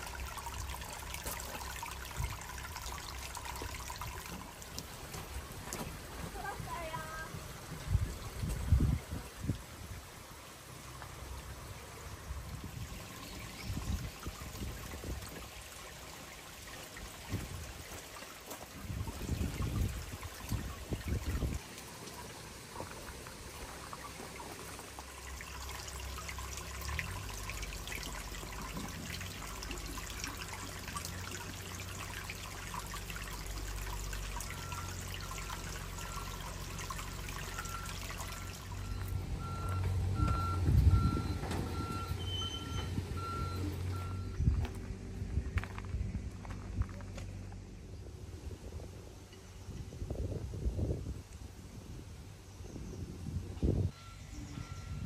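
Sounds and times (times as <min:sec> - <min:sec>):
water trickling into a pool: 0:00.0 - 0:55.0
low steady rumble: 0:18.8 - 0:55.0
short beeps: 0:37.6 - 0:44.4, 0:53.9 - 0:55.0.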